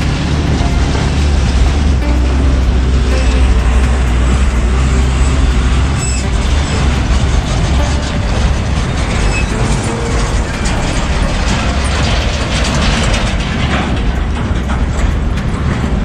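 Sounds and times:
diesel truck engine rumble: 0:00.0 - 0:16.0
truck bodies rattling over bumps: 0:00.0 - 0:16.0.

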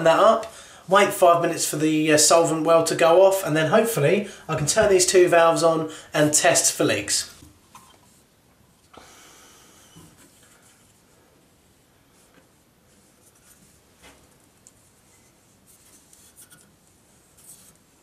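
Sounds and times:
brush rubbing on plastic pipe: 0:10.2 - 0:18.0.

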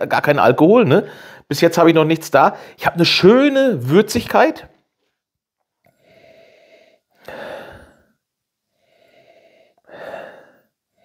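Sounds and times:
man breathing through nose: 0:01.1 - 0:01.5, 0:05.9 - 0:11.0.

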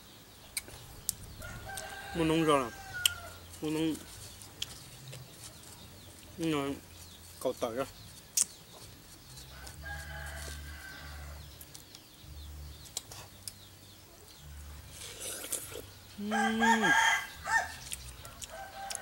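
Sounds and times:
rooster crowing: 0:01.4 - 0:03.5, 0:09.5 - 0:11.4, 0:16.2 - 0:19.0.

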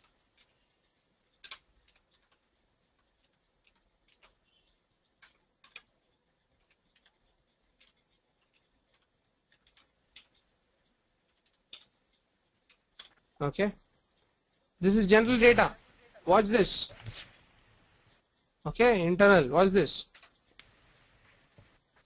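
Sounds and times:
computer keyboard keystrokes: 0:00.0 - 0:10.5, 0:12.6 - 0:13.4, 0:20.0 - 0:20.8.

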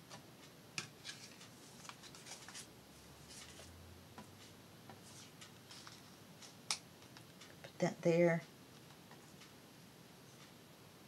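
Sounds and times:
paper rustling: 0:01.0 - 0:02.7.

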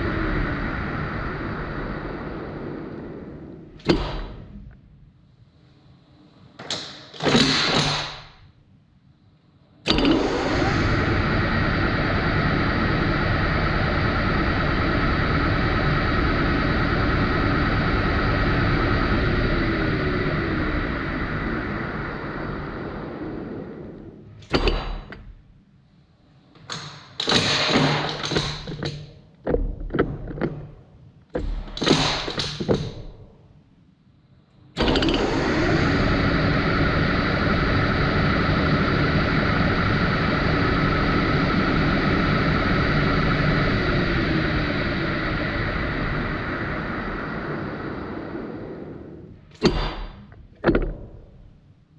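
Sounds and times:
metal lathe running with gear whine: 0:09.9 - 0:22.8, 0:34.8 - 0:47.9.

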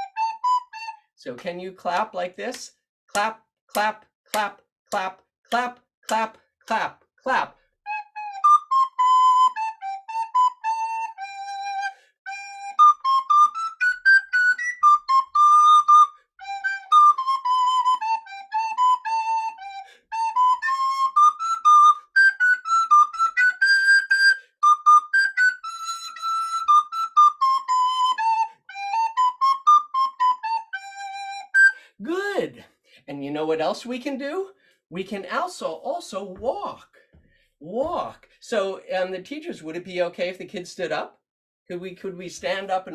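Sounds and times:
recorder playing a quick melody: 0:00.0 - 0:00.9, 0:07.9 - 0:31.8.

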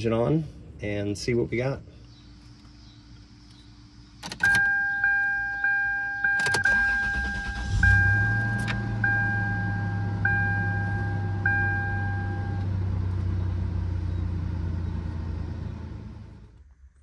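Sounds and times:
car engine starting and idling: 0:00.0 - 0:17.0
dashboard warning chime beeping: 0:04.3 - 0:12.7.

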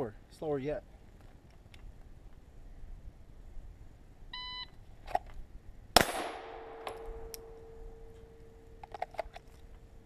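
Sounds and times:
electronic start beep: 0:04.4 - 0:04.7
loud pistol shot: 0:06.0 - 0:07.3.

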